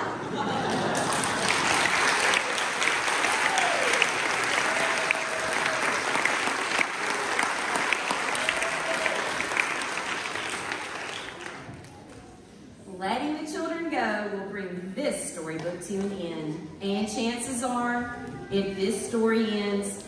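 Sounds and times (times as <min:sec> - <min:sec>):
audience applauding: 0:00.5 - 0:12.2.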